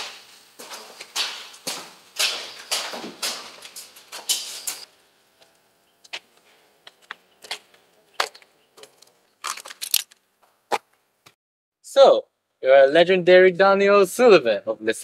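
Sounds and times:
footsteps on concrete: 0.0s - 4.4s.

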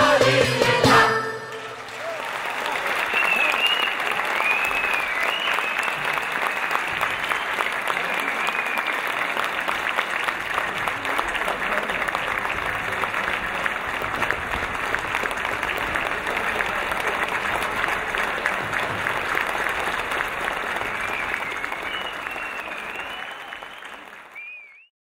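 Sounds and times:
audience applauding: 1.4s - 24.9s.

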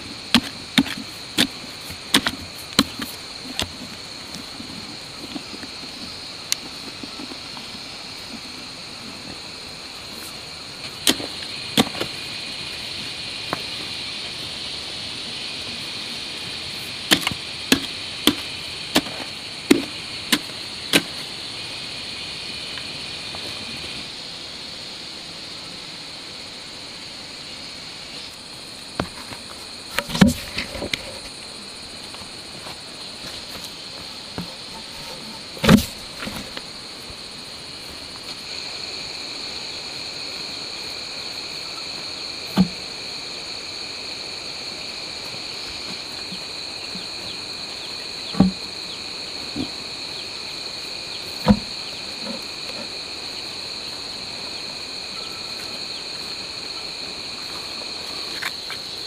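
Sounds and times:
high insect buzz: 0.0s - 59.0s
spade chopping into hard soil: 0.3s - 3.7s, 11.0s - 12.1s, 17.1s - 21.2s, 35.6s - 36.4s.

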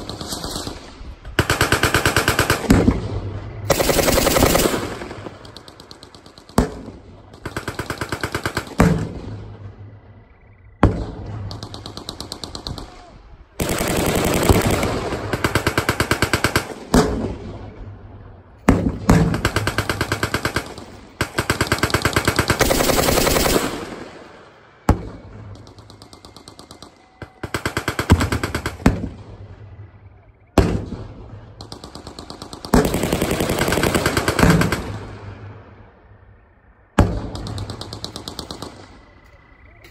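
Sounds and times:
machine gun bursts: 3.7s - 5.6s, 19.4s - 23.9s.

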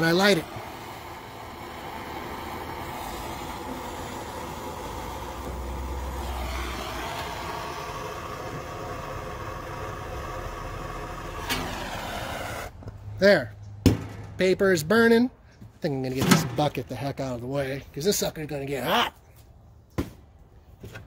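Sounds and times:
gas blowtorch hissing: 0.0s - 12.8s.

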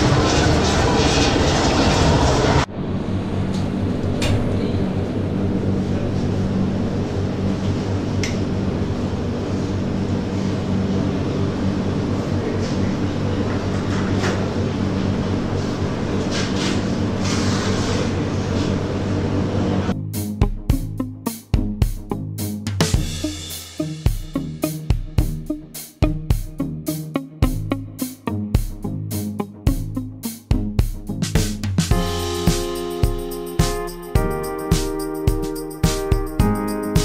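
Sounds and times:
mechanical rumble with low hum: 0.0s - 19.9s.

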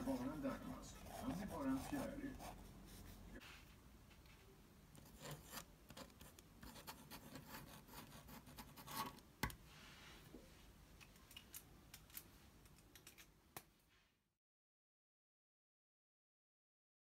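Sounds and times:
pen scratching on paper: 0.0s - 3.2s, 5.0s - 9.2s.

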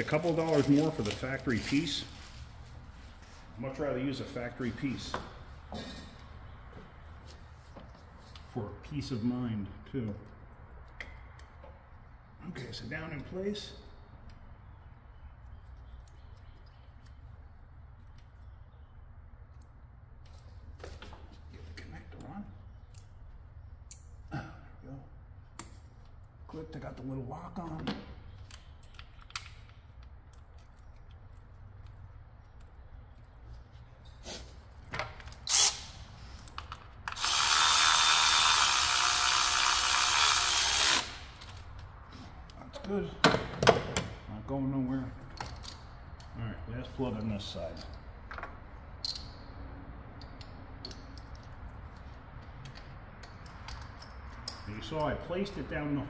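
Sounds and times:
clicks and rattles of handling parts: 27.8s - 33.3s, 36.3s - 37.4s, 45.2s - 46.3s, 50.1s - 55.4s
power tool running: 37.1s - 41.2s.

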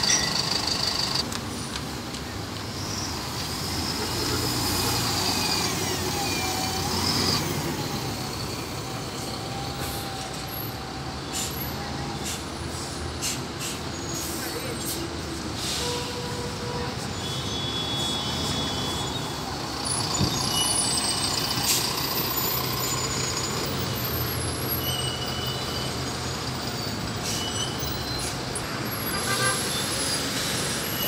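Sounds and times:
short high squeaks: 0.0s - 1.2s, 24.4s - 31.0s
bus engines driving past: 0.0s - 31.0s.

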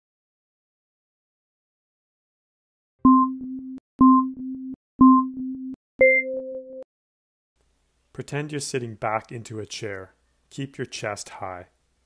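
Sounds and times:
countdown timer beeps: 3.0s - 6.8s.

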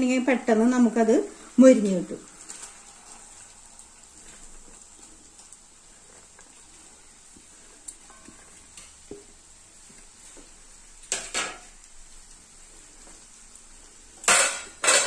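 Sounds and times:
onions sizzling in hot oil: 0.0s - 15.0s
metal spoon clattering against pan: 14.2s - 15.0s.

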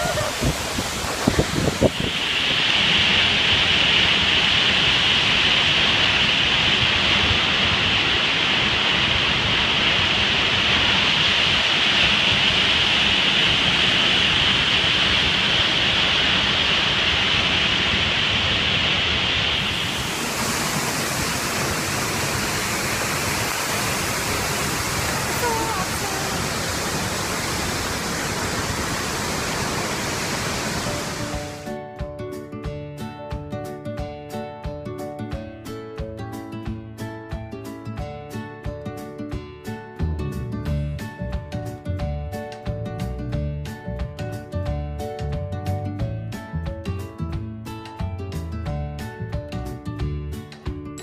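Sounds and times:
large waterfall rushing: 0.0s - 31.6s.

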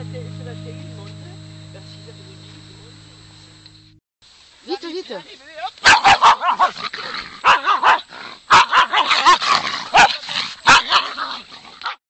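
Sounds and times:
dogs barking: 5.8s - 6.8s, 7.4s - 12.0s
dogs yipping: 5.8s - 6.8s, 7.4s - 12.0s.

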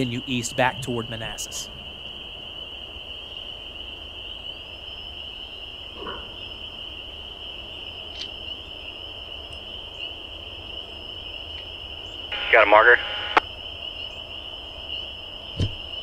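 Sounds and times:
high-pitched animal chorus: 5.9s - 6.6s.

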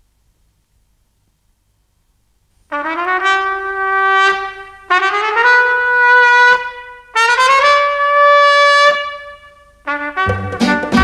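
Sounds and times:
trumpet playing long held notes: 2.7s - 11.0s.

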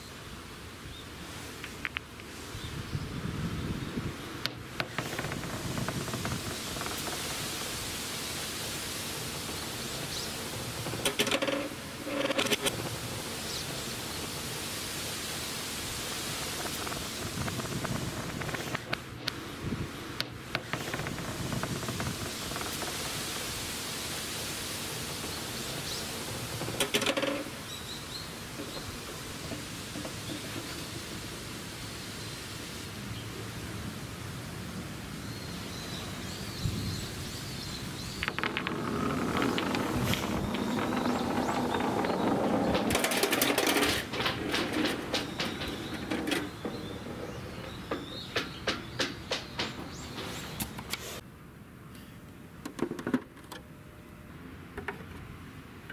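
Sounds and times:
ball rolling on concrete: 4.4s - 8.0s, 9.3s - 13.7s, 16.4s - 19.4s, 20.2s - 23.3s, 25.3s - 31.5s, 38.0s - 50.9s
ball clattering against plastic: 4.5s - 7.6s, 10.8s - 12.9s, 26.6s - 27.5s, 38.2s - 50.9s.

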